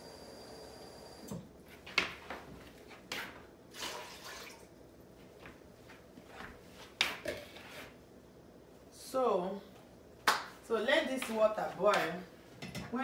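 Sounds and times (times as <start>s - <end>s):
water pouring into a pot: 3.8s - 4.7s.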